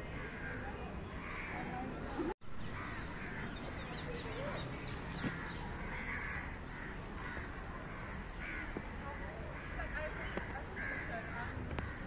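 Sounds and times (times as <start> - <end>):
crows cawing: 0.1 - 1.8, 2.7 - 3.9, 5.2 - 12.0
small birds chirping: 2.5 - 6.3.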